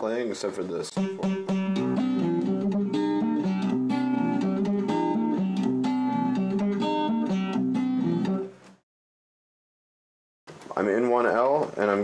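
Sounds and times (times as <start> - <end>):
plucked string melody: 0.9 - 8.6.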